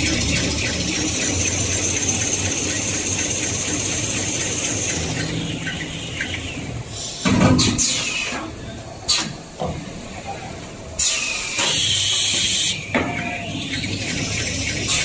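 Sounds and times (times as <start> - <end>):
high machine whine: 0.0 - 7.2
loud hiss: 11.0 - 12.8.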